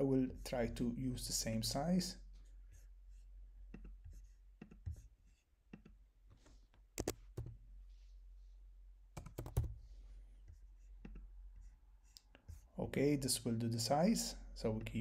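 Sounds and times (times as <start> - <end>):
keyboard keystroke clicks: 7.0 - 7.5.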